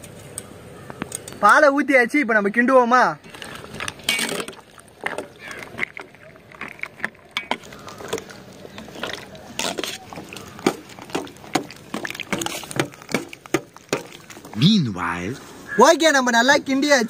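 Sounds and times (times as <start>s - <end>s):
milk and cereal sloshing: 3.2s - 15.5s.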